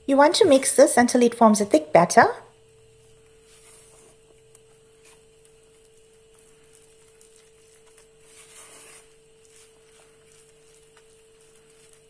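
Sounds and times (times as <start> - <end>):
faint steady hum: 0.0 - 12.0
wooden spoon stirring batter: 2.9 - 12.0.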